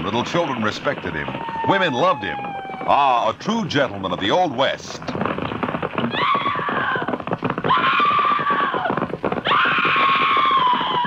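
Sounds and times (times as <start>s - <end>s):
fast clatter of knocks: 0.0s - 11.0s
high-pitched cries: 7.7s - 8.9s.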